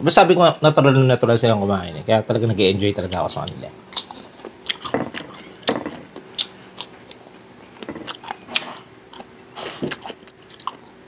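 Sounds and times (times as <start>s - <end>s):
crunchy chewing: 3.1s - 11.0s.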